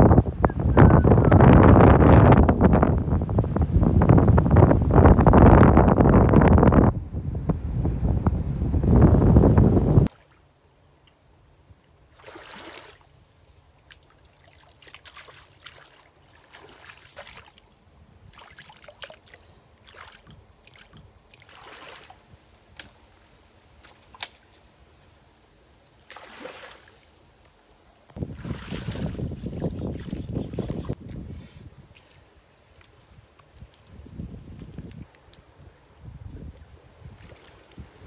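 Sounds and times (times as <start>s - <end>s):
water splashes and trickles: 10.0s - 25.2s, 25.8s - 38.0s.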